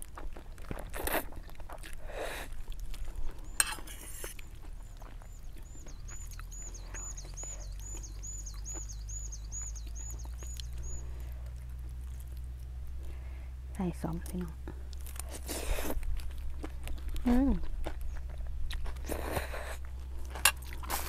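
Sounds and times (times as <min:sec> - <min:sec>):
soft eating noises: 0:00.0 - 0:21.0
noodles slurped: 0:00.6 - 0:04.5, 0:18.8 - 0:21.0.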